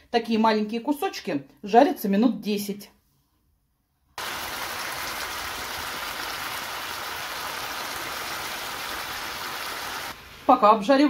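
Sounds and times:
meat and mushrooms sizzling in pan: 4.2s - 10.6s.

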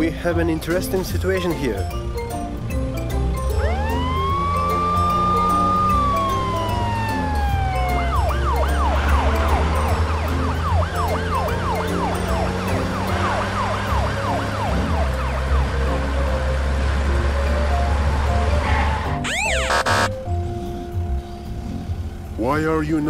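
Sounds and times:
background music: 0.0s - 23.0s
police siren wail and yelp: 3.4s - 16.2s, 17.7s - 20.1s.

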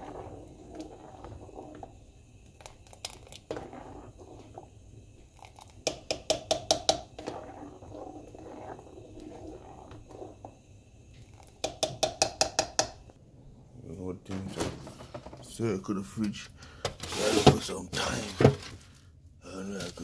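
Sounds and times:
spoon stirring thick porridge: 0.0s - 13.1s
spoon clacking against pan: 5.8s - 7.2s, 11.6s - 13.0s.

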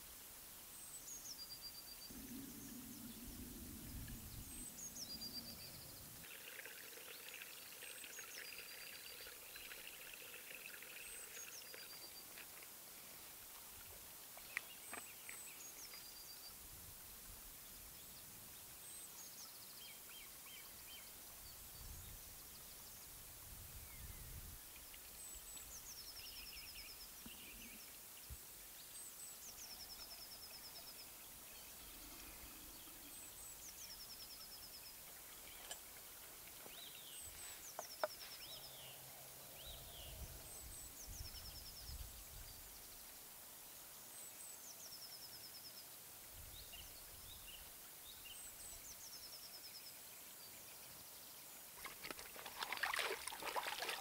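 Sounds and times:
low rumbling bursts: 2.1s - 6.2s.

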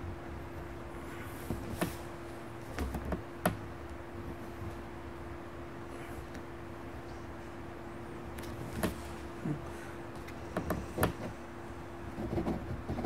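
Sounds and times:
steady low hum: 0.0s - 13.0s
pen scratching on paper: 12.2s - 13.0s.

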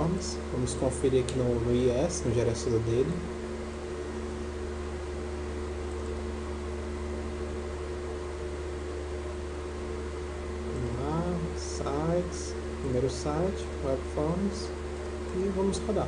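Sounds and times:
steady background hum: 0.0s - 16.0s.

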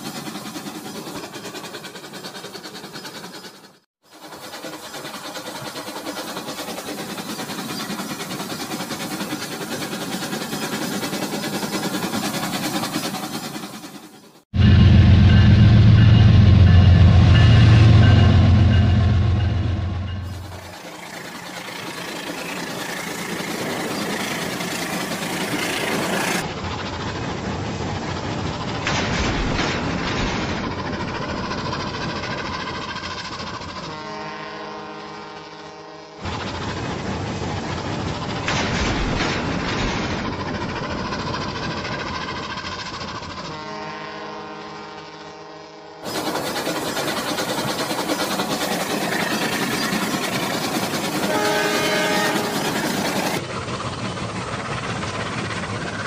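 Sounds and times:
toy train motor rattling hum: 0.0s - 14.4s, 20.3s - 26.5s, 40.4s - 56.0s
electronic toy train horn: 33.9s - 36.1s, 43.5s - 46.1s, 51.2s - 52.8s
toy train wheels rattling: 46.0s - 56.0s.

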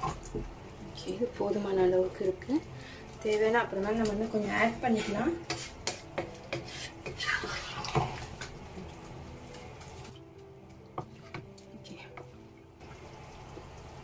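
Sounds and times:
liquid sloshing in pan: 4.1s - 11.7s.

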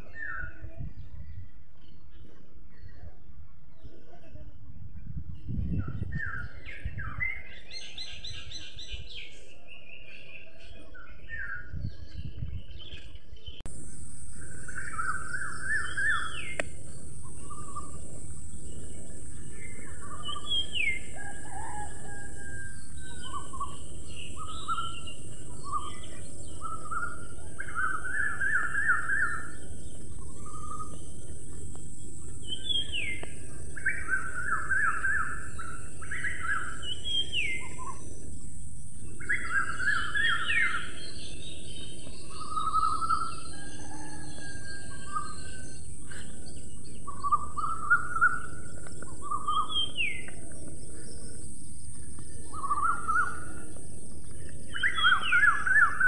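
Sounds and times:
small birds chirping: 0.0s - 56.0s
steady high hiss: 13.7s - 43.5s.

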